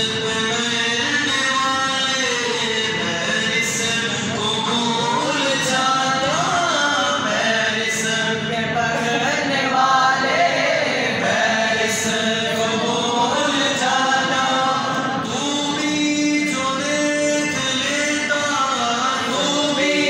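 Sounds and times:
men chanting together: 5.0 - 15.7, 18.9 - 20.0.

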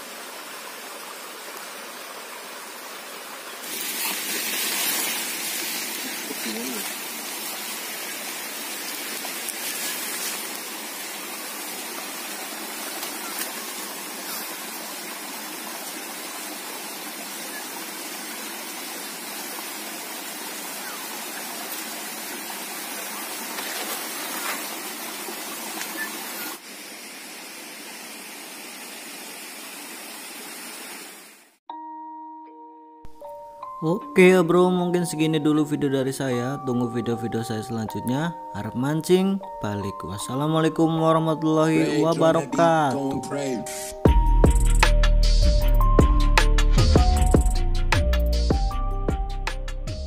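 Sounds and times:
stream rushing: 0.0 - 31.6.

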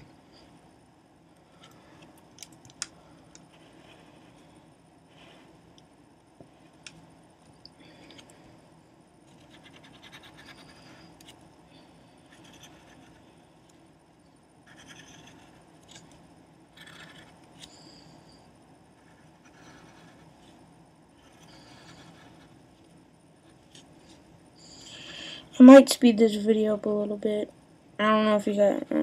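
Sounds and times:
steady low hum: 0.0 - 29.0
pencil scratching on paper: 9.4 - 11.2, 12.3 - 13.2, 14.7 - 15.6, 19.0 - 20.4, 21.2 - 22.5.

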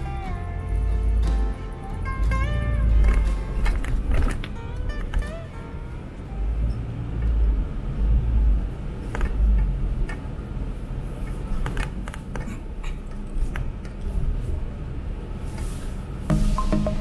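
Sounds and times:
vehicle low rumble: 0.0 - 17.0.

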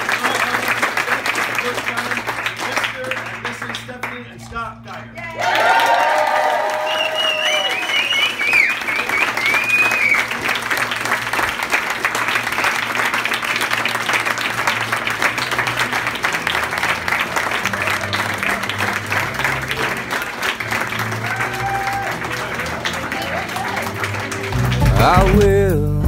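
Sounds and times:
crowd clapping: 0.0 - 25.8
music: 12.0 - 26.0.

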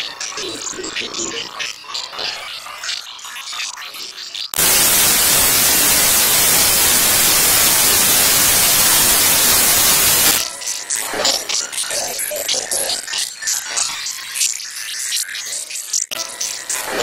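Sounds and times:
white-noise static hiss: 4.6 - 10.4.

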